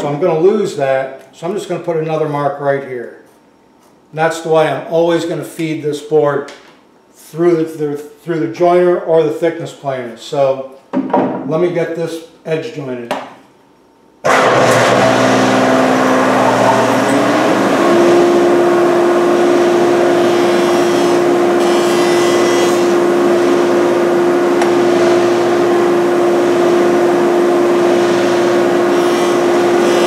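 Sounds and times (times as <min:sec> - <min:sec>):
jointer running: 0:14.3 - 0:30.0.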